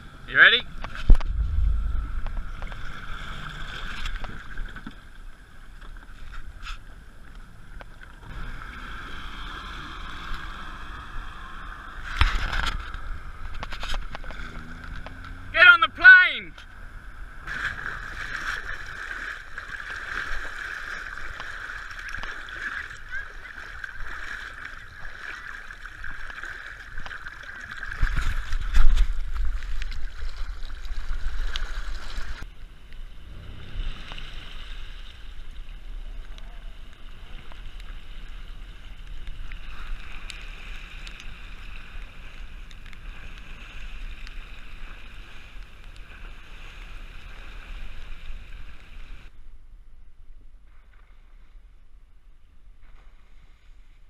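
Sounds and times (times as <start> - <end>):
low engine rumble: 0.0 - 6.1
outboard motor droning: 0.0 - 28.6
loud low buffeting: 0.6 - 4.5
fast-flowing floodwater: 17.4 - 32.5.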